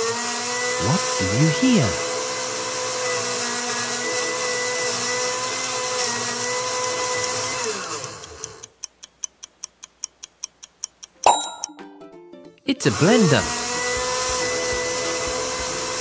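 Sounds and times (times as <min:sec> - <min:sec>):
electric blender running: 0:00.0 - 0:08.3, 0:13.1 - 0:16.0
timer ticking: 0:05.6 - 0:11.9.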